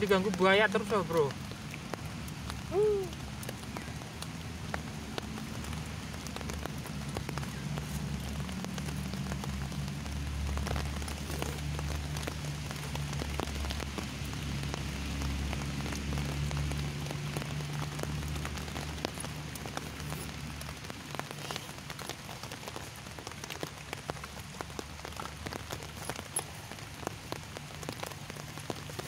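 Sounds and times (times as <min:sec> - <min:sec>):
light rain drops ticking: 0:00.0 - 0:29.0.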